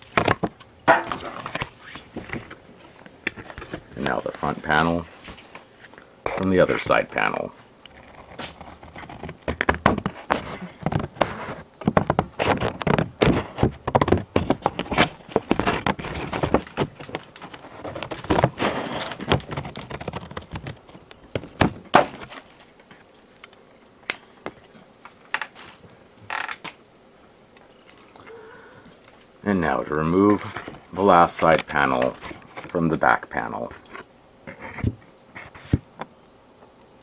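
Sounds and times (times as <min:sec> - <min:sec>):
cardboard box crackling: 0:07.9 - 0:22.8
packaging rustle: 0:07.9 - 0:22.8.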